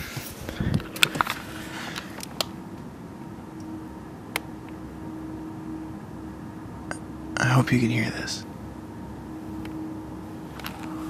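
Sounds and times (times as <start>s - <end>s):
steady low hum: 0.0s - 11.0s
held tone: 3.1s - 11.0s.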